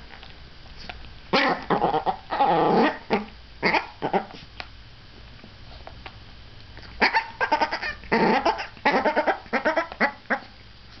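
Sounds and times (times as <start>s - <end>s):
small dog yapping: 1.3s - 4.4s, 7.0s - 10.5s.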